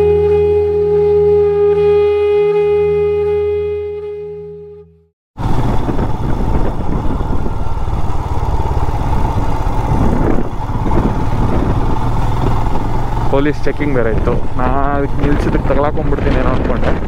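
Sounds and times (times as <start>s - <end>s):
background music: 0.0s - 5.0s
motorcycle engine running: 5.4s - 17.0s.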